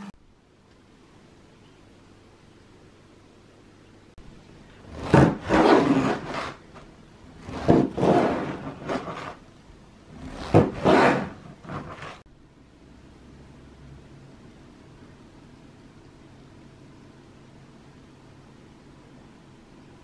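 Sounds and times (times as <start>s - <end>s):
knife sawing through bread: 4.9s - 6.6s, 10.2s - 12.2s.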